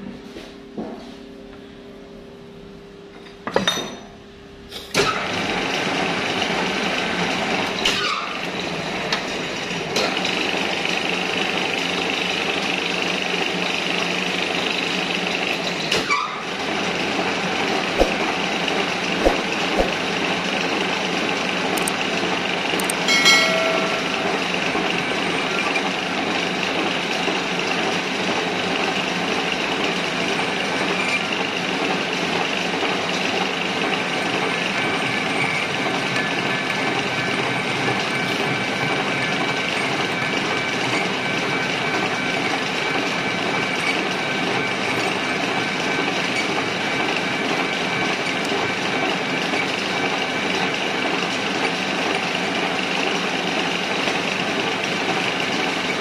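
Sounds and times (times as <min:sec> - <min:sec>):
metal lathe running: 0:05.2 - 0:56.0
short metallic ring: 0:23.1 - 0:24.3.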